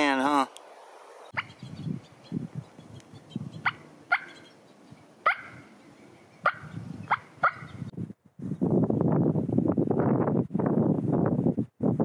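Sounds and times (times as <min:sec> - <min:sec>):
turkey calls: 0:01.3 - 0:02.3, 0:03.0 - 0:07.8.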